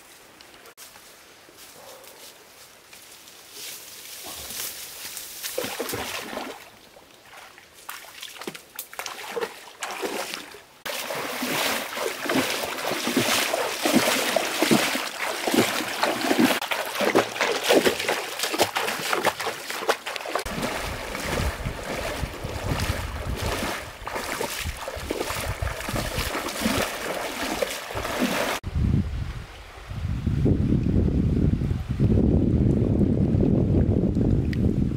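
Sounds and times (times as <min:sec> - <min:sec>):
water splashing around wading legs: 0:05.4 - 0:28.6.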